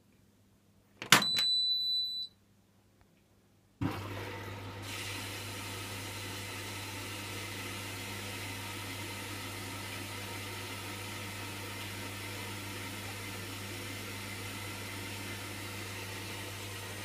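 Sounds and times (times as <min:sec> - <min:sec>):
washing machine click: 0:01.0 - 0:01.6
high beep: 0:01.1 - 0:02.4
water rushing into drum: 0:03.8 - 0:17.0.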